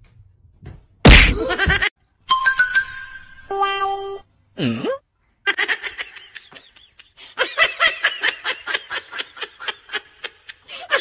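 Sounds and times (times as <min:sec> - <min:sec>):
high-pitched laughter: 0:05.5 - 0:11.0.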